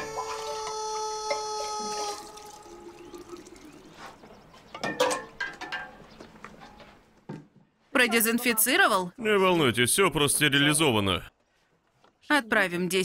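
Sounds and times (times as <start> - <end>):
liquid pouring into a glass jug: 1.9 - 4.2.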